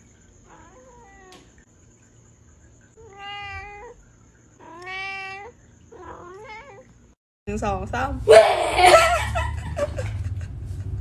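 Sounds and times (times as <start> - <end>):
cat meowing: 3.0 - 4.0, 4.6 - 6.9.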